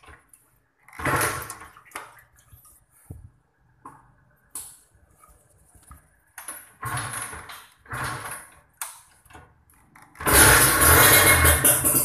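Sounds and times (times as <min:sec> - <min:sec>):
two-stroke motorcycle engine: 0:06.8 - 0:08.6, 0:09.9 - 0:12.0.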